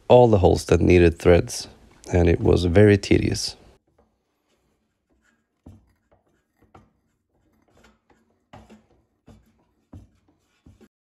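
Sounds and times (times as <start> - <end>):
tap scraping and creaking in metal: 3.8 - 10.9.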